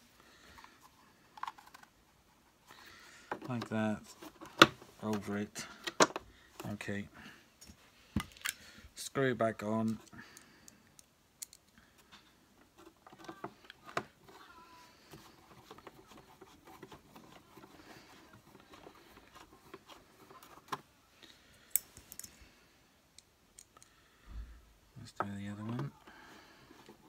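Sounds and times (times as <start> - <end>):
plastic parts clicking: 9.8 - 11.8.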